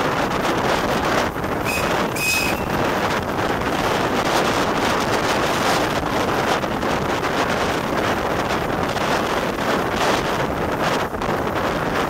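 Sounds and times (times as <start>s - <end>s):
steam train running: 0.0s - 12.0s
wind on microphone: 0.0s - 12.0s
short high tones: 1.6s - 2.8s.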